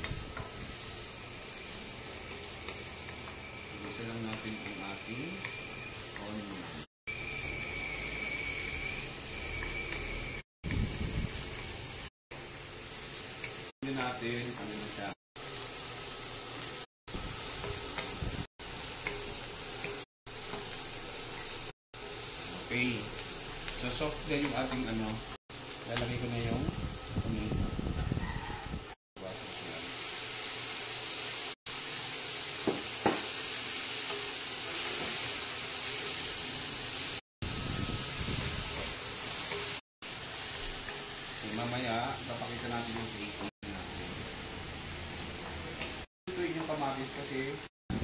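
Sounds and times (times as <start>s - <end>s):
wooden spatulas stirring in wok: 0.0s - 6.8s, 32.5s - 37.1s, 38.6s - 43.5s
onions sizzling in hot oil: 0.0s - 48.0s.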